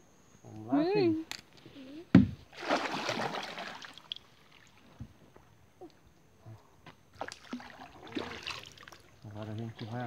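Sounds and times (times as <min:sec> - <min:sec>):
paddle splashing water: 0:02.5 - 0:04.8, 0:07.2 - 0:09.1.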